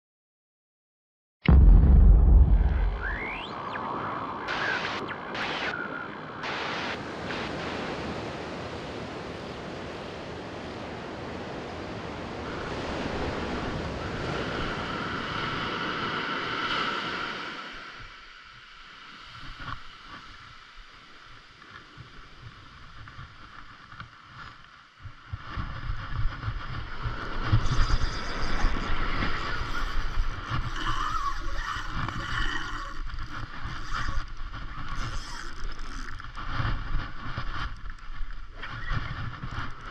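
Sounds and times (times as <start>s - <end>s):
surf washing on beach: 2.8s - 39.9s
steady hiss: 4.5s - 7.6s
wind buffeting microphone: 25.2s - 39.9s.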